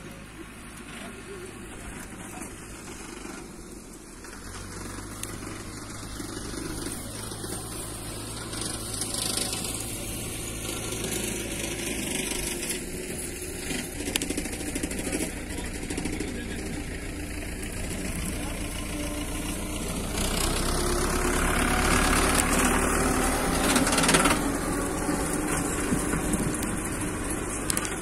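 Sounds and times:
tractor diesel engine running: 0.0s - 28.0s.

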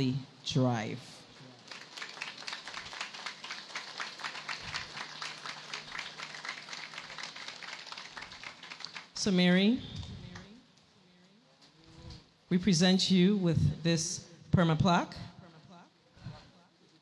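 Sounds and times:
audience applauding: 1.6s - 9.2s.

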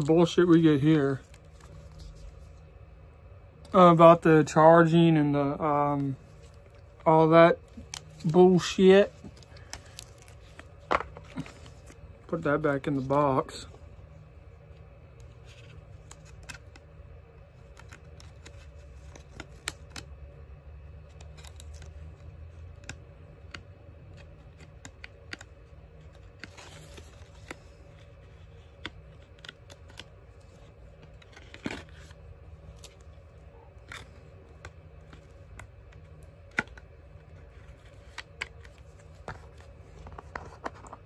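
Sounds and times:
low room hum: 0.0s - 41.0s
paper packaging crinkling: 5.8s - 13.6s, 15.2s - 20.1s, 21.0s - 22.9s, 24.1s - 41.0s.

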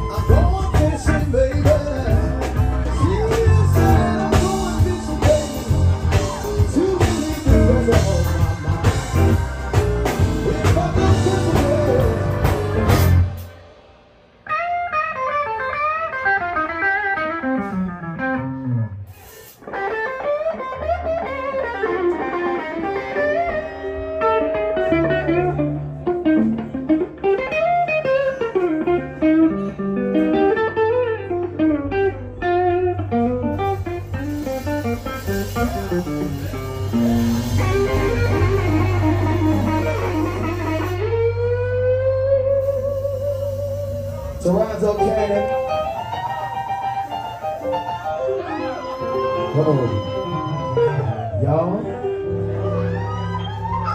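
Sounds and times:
solo blues guitar: 0.0s - 13.6s, 14.4s - 53.9s
low bass notes: 0.0s - 14.0s, 28.6s - 46.0s
live blues band playing: 0.0s - 53.9s.

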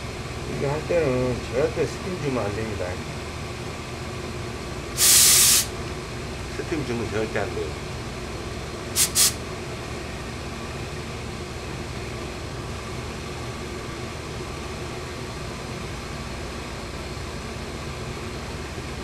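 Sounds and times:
steady fan-like hum: 0.0s - 19.0s
steam iron hissing: 5.0s - 5.7s, 9.0s - 9.4s.

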